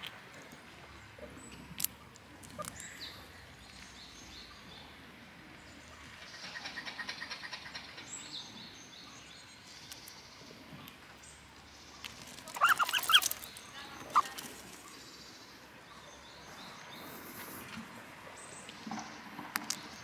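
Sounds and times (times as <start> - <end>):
high animal chirps: 12.4 - 14.5.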